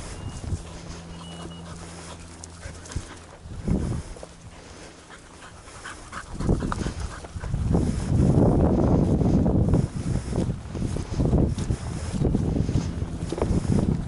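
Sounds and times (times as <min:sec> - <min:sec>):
wind on microphone: 0:00.0 - 0:01.1, 0:02.9 - 0:04.8, 0:05.8 - 0:14.0
dog panting: 0:00.0 - 0:08.4.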